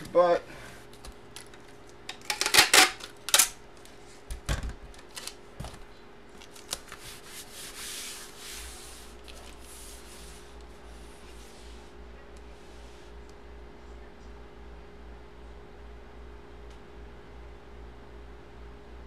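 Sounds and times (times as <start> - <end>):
paper sliding and rubbing: 6.8 - 13.1.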